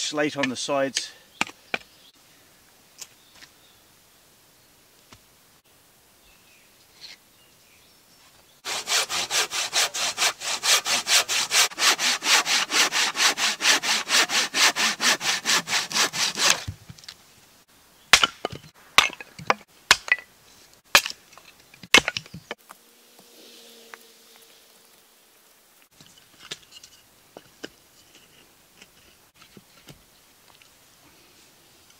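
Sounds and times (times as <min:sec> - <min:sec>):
hand saw cutting wood: 0:08.6 - 0:16.7
logs knocking on stones: 0:18.1 - 0:20.3, 0:20.9 - 0:22.6.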